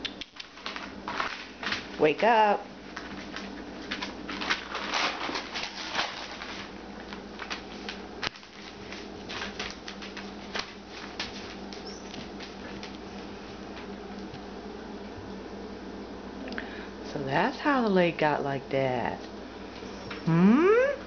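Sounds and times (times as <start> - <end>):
puppy paws pattering on newspaper: 0.0 - 14.4.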